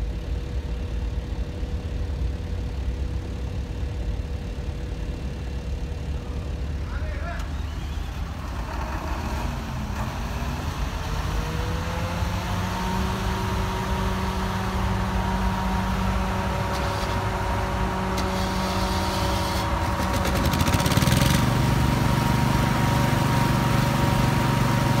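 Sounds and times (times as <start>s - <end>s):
diesel engine running under load: 0.0s - 25.0s
rapid machinery rattle: 16.0s - 25.0s.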